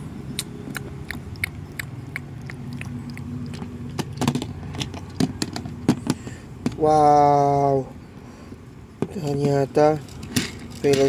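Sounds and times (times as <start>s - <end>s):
chewing on a plastic toy: 0.4s - 5.2s.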